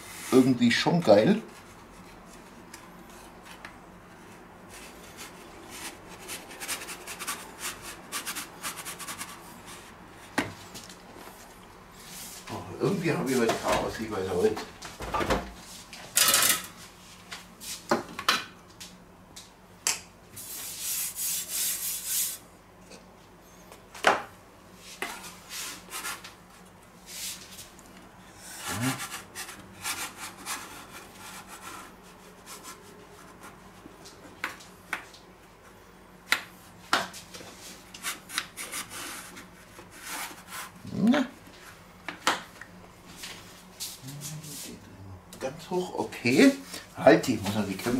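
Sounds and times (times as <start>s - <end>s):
pizza peel scraping wooden board: 28.5s - 33.5s, 38.0s - 40.8s.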